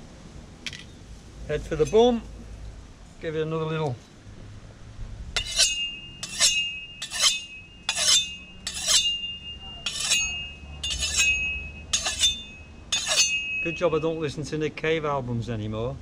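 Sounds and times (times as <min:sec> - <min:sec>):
short metallic ring: 0:05.4 - 0:14.3.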